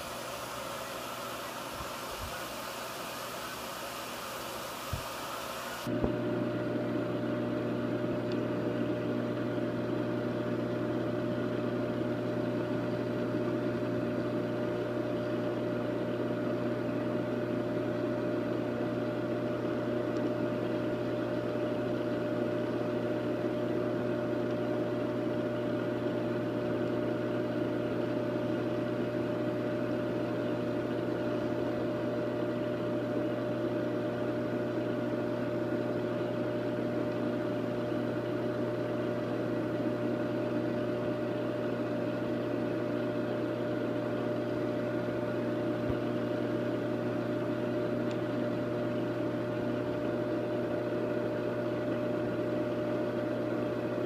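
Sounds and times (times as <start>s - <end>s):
aquarium equipment humming: 0.0s - 54.0s.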